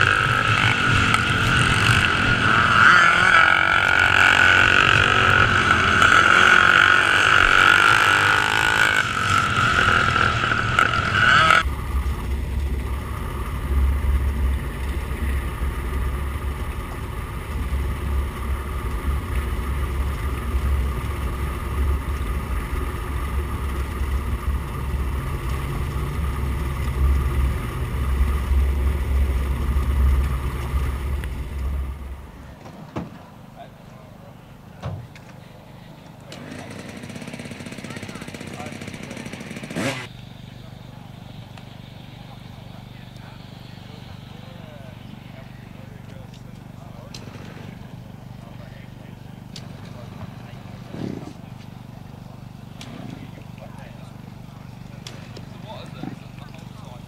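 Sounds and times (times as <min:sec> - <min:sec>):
motorcycle engines revving: 0:00.0 - 0:57.0
dull low rumble: 0:09.0 - 0:32.6.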